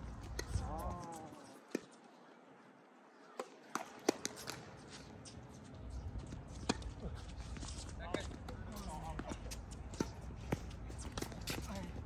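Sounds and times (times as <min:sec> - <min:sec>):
tennis ball and racket impacts: 0:03.4 - 0:05.3, 0:06.2 - 0:11.9.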